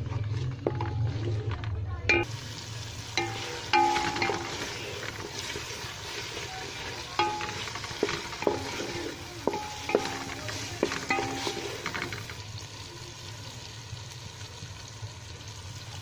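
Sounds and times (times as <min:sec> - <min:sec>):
metal spoon stirring in pot: 0:00.0 - 0:02.3, 0:03.1 - 0:12.4
frying sizzle: 0:00.0 - 0:16.0
spoon clinking against pot: 0:03.2 - 0:04.8, 0:07.2 - 0:12.3.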